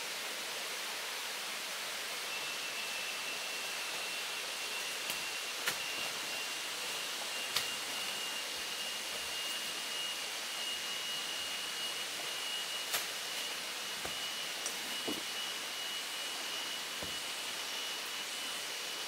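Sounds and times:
footsteps snapping in leaf litter: 0:12.9 - 0:13.2.

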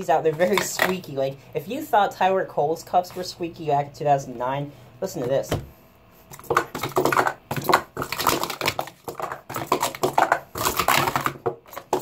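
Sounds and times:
plastic cups clacking: 0:06.3 - 0:12.0
plastic cups squeaking: 0:06.3 - 0:12.0.

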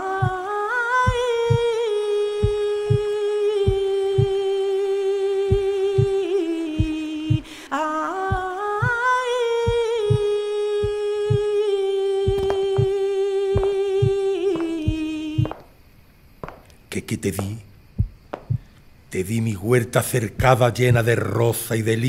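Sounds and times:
person singing long wordless note: 0:00.0 - 0:15.6
low heartbeat-like thump: 0:00.2 - 0:00.4, 0:01.1 - 0:01.7, 0:02.4 - 0:03.1, 0:03.7 - 0:04.4, 0:05.5 - 0:06.2, 0:06.8 - 0:07.5, 0:08.3 - 0:09.0, 0:09.7 - 0:11.6, 0:12.3 - 0:13.0, 0:13.6 - 0:15.7, 0:17.4 - 0:18.7.

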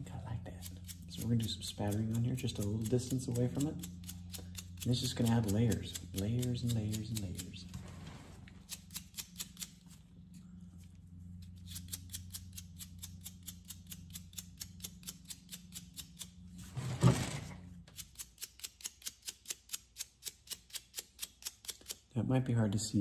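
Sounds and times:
low hum: 0:00.0 - 0:18.0
brush bristles ticking: 0:00.2 - 0:07.7.

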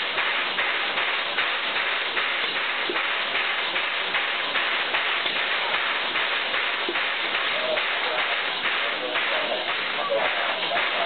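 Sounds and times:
steam locomotive hissing steam: 0:02.8 - 0:11.0.

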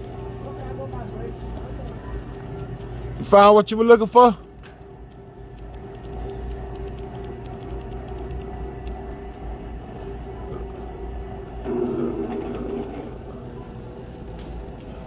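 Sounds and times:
low rumble: 0:11.5 - 0:14.2.

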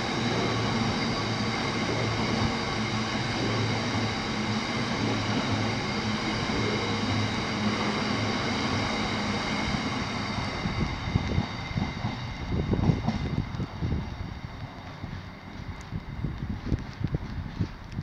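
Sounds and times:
train wheels rumbling on rails: 0:00.0 - 0:18.0.

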